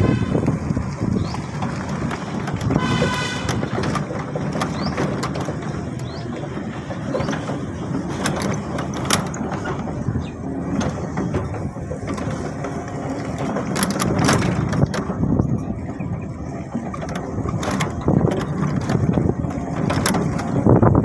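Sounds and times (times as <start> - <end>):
bicycle rattling and clicking: 0.0 - 21.0
tyres rumbling on dirt: 0.0 - 21.0.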